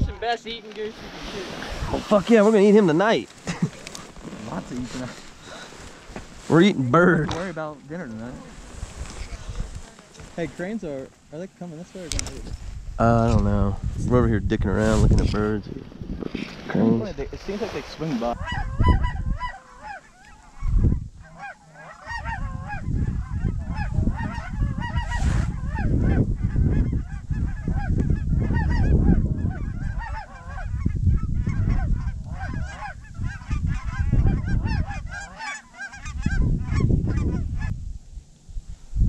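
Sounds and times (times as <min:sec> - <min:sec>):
wind rumbling on microphone: 0:00.0 - 0:11.4, 0:12.0 - 0:39.0
cranes calling: 0:17.8 - 0:37.7.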